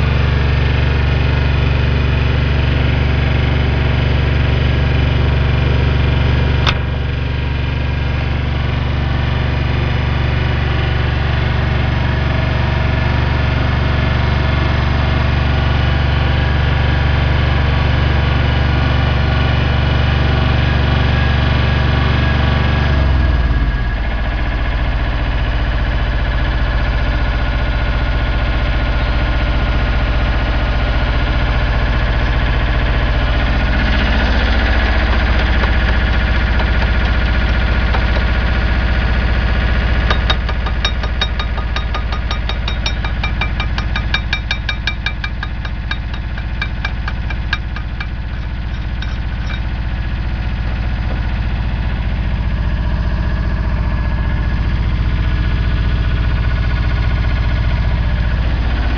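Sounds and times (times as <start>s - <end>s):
generator engine running: 0.0s - 58.9s.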